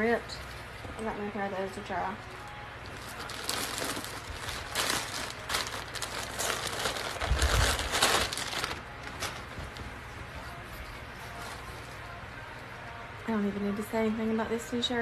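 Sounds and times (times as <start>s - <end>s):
plastic bags crinkling: 2.8s - 10.6s.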